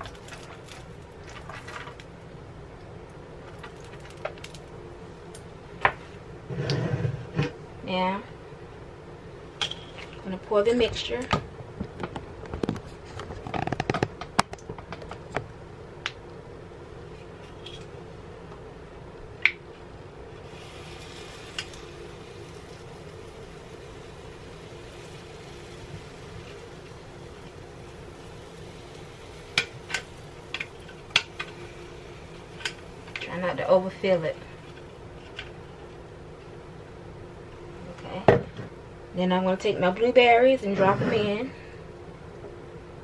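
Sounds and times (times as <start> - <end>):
steady low hum: 0.0 - 43.0
faint hiss: 20.3 - 36.8.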